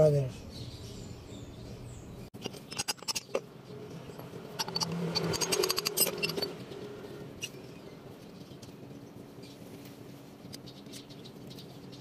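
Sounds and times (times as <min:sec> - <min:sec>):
metallic clicks and clinks: 0:04.5 - 0:06.6.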